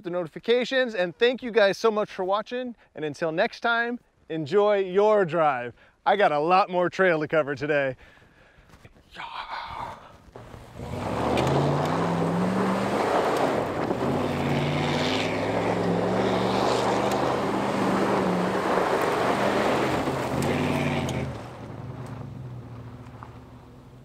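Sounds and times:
tires on dirt and gravel: 0:10.2 - 0:24.0
truck engine revving: 0:10.4 - 0:24.0.

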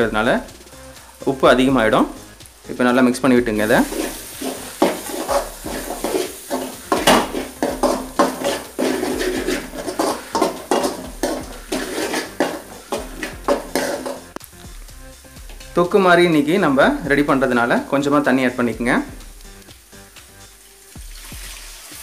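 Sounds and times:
spoon scraping a metal pan: 0:03.6 - 0:14.4.

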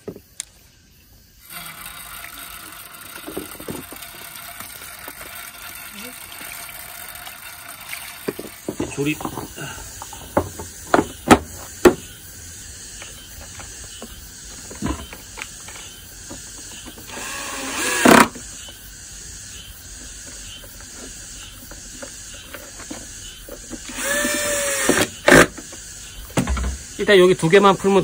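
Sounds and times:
steady background hiss: 0:00.0 - 0:28.0
cordless drill driving screws: 0:01.4 - 0:08.7, 0:17.1 - 0:18.4, 0:23.8 - 0:25.5.

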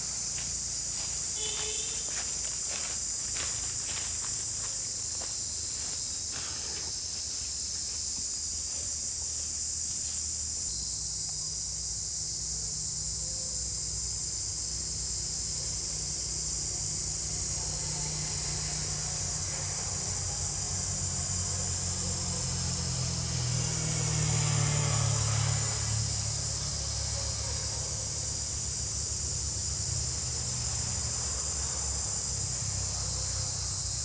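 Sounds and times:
insects droning: 0:00.0 - 0:34.0.

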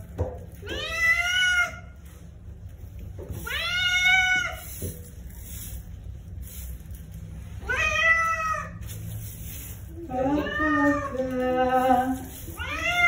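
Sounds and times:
cat meowing: 0:07.6 - 0:08.8, 0:10.1 - 0:11.6, 0:12.5 - 0:13.0.

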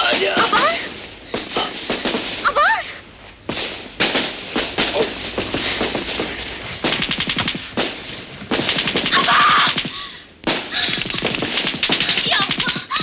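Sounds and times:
automatic gunfire bursts: 0:06.8 - 0:09.9, 0:10.5 - 0:13.0
child screaming: 0:09.1 - 0:09.8.

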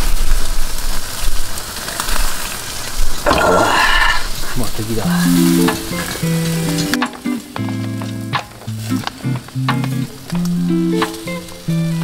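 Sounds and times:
skewers sizzling over charcoal: 0:00.0 - 0:12.0
background music with held notes: 0:05.1 - 0:12.0.

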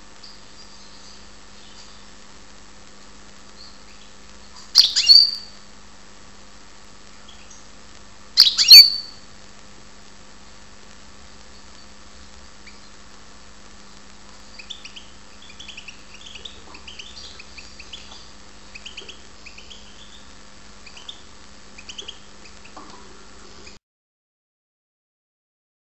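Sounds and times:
goldfinch chirping: 0:04.8 - 0:05.5, 0:08.4 - 0:09.1.

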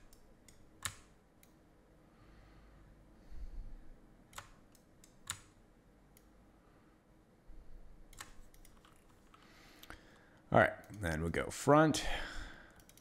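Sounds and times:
mouse and keyboard clicks: 0:08.1 - 0:09.4.

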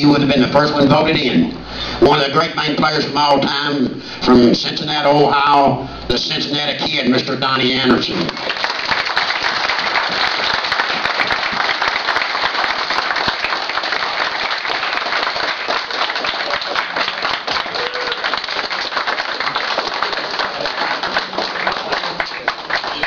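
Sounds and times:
audience applauding: 0:08.2 - 0:23.0.

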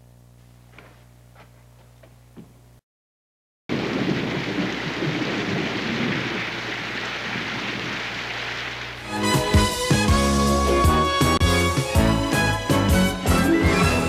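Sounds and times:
thunder rumbling: 0:03.7 - 0:09.0
heavy rain: 0:03.7 - 0:10.0.

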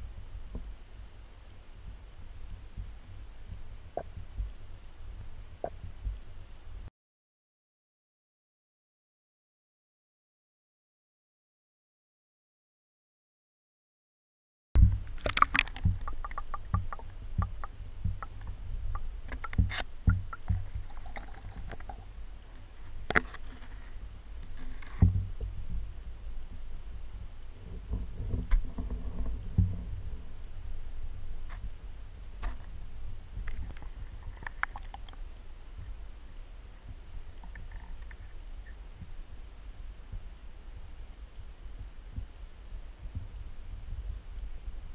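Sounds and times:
steady low rumble: 0:00.0 - 0:06.9, 0:14.8 - 0:44.9
small underwater clicks: 0:14.8 - 0:25.8, 0:33.4 - 0:36.0, 0:37.3 - 0:39.2.

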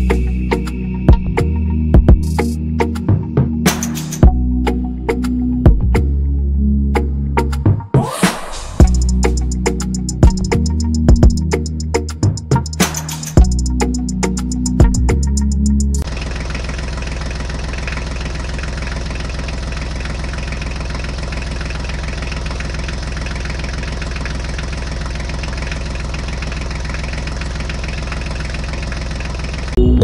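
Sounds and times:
tractor engine idling: 0:08.8 - 0:29.8.

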